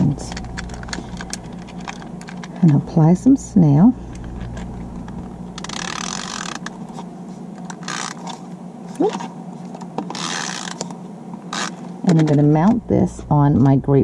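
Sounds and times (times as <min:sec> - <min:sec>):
tape runner rasping and clicking: 0:04.2 - 0:07.0.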